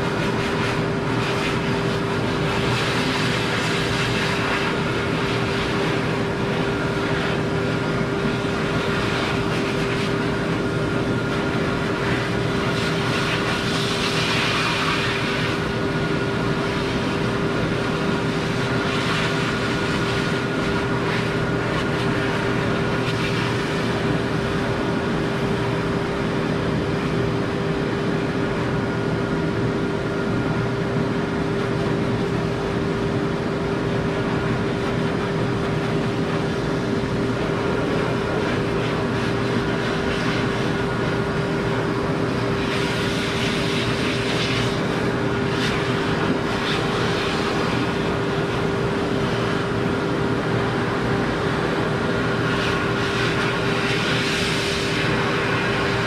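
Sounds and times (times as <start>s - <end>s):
dryer motor hum: 0.0s - 56.0s
air rushing from hose: 35.2s - 50.0s.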